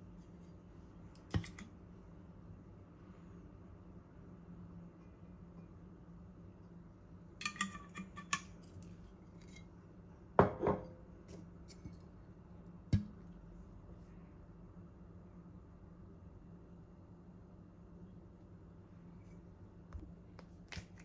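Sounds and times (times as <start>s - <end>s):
bottle knocking on counter: 10.4s - 10.9s.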